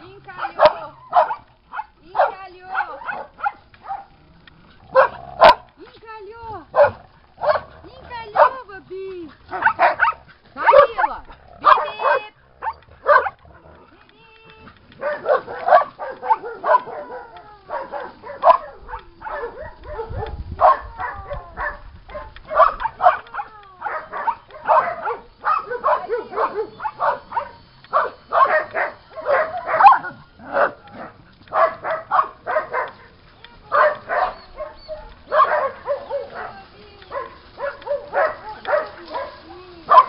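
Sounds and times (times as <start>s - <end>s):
dogs barking: 0.0s - 5.8s, 6.4s - 13.9s, 14.7s - 40.0s.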